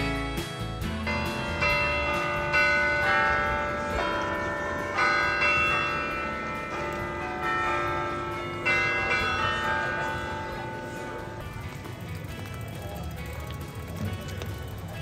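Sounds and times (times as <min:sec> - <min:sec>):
carillon bells playing a slow tune: 0:01.0 - 0:11.6.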